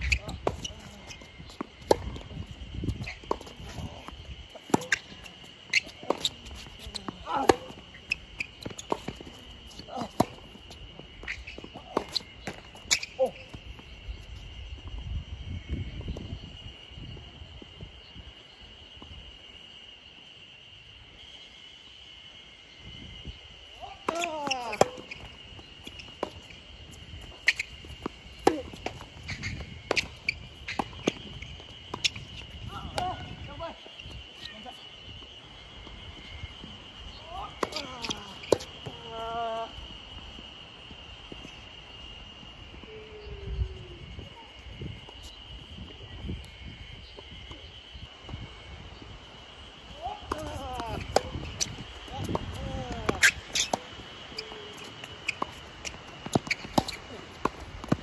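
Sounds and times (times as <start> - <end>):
footsteps on court: 0.0 - 14.9, 49.9 - 58.0
high-pitched insect drone: 0.0 - 58.0.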